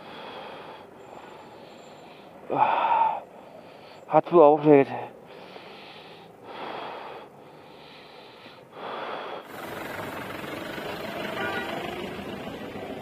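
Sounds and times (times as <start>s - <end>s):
person breathing out hard: 0.0s - 4.1s, 5.2s - 9.6s
outdoor background noise: 0.0s - 13.0s.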